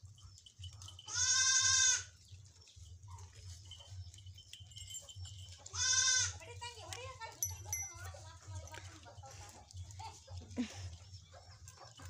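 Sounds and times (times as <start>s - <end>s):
goats bleating: 1.1s - 2.2s, 5.7s - 6.5s.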